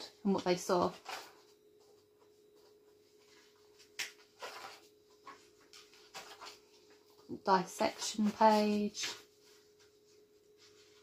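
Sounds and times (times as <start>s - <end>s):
book pages turning: 3.6s - 7.0s.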